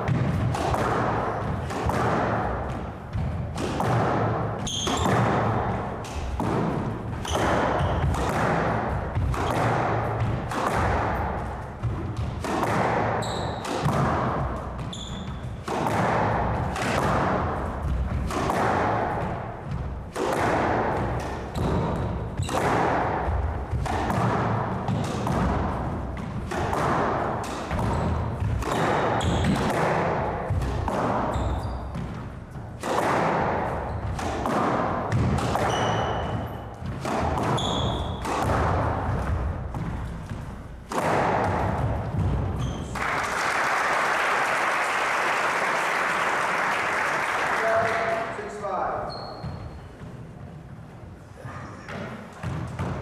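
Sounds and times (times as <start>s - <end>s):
squash ball hitting rackets and walls: 0.0s - 43.5s, 47.6s - 53.0s
shoes squeaking on wooden floor: 4.6s - 5.2s, 7.2s - 8.2s, 13.1s - 13.7s, 14.7s - 15.6s, 27.8s - 29.6s, 31.2s - 32.1s, 35.6s - 36.8s, 37.5s - 38.2s, 42.5s - 42.9s, 48.5s - 53.0s.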